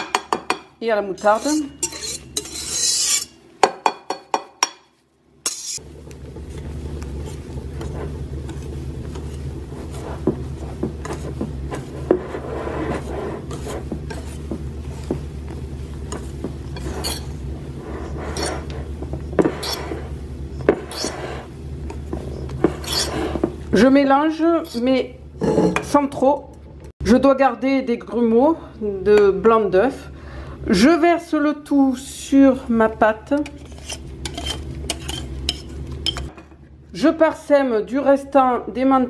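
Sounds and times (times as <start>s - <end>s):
whisk stirring batter in bowl: 1.2s - 3.3s, 5.5s - 23.7s, 33.4s - 36.3s.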